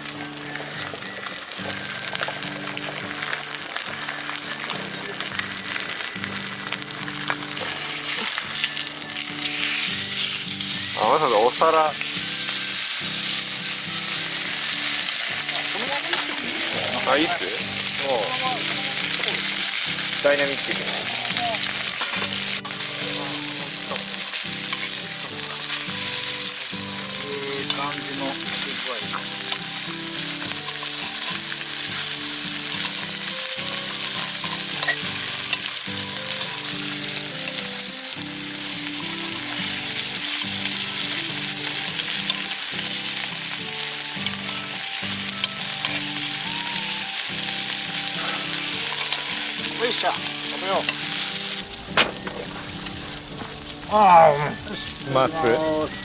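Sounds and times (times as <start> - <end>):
steak sizzling in a skillet: 0.0 - 56.0
tongs and knife scraping a pan: 23.8 - 26.2, 27.6 - 29.6, 33.8 - 35.7, 48.1 - 51.4.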